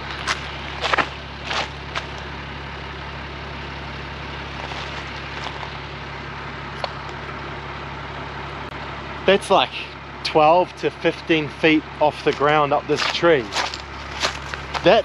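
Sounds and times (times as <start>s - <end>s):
footsteps on gravel: 0.0s - 2.3s, 4.4s - 5.8s, 12.1s - 15.0s
diesel truck engine idling: 0.0s - 15.0s.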